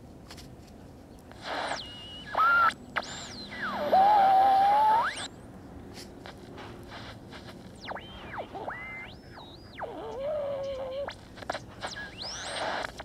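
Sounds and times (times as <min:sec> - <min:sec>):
static hiss: 0:01.3 - 0:05.3, 0:06.2 - 0:13.0
radio squeals and whistles: 0:01.4 - 0:05.4, 0:06.9 - 0:13.0.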